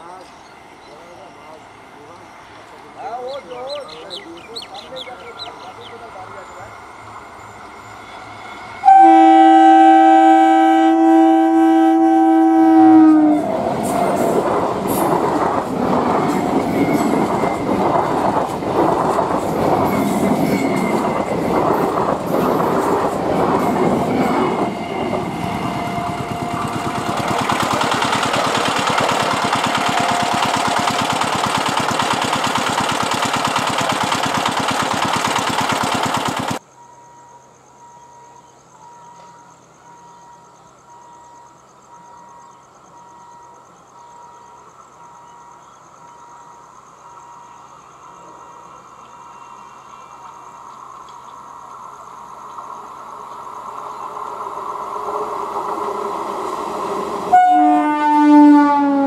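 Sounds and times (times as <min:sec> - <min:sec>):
train horn two-note blast: 0:08.8 - 0:13.5, 0:57.3 - 0:59.0
train wheels clattering over rails: 0:13.6 - 0:36.6.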